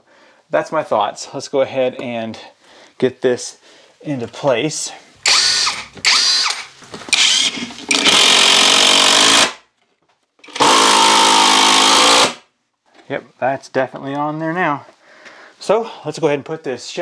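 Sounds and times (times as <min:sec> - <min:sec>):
cordless drill driving screws: 0:05.2 - 0:09.6, 0:10.4 - 0:12.4.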